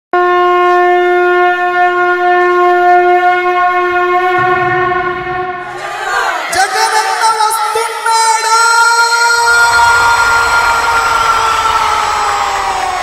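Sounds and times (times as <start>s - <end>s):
horn-like wind note: 0.2s - 6.2s.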